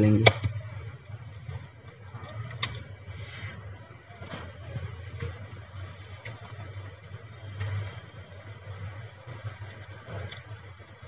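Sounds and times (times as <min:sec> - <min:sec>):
wires rustling and scraping: 0:00.5 - 0:11.0.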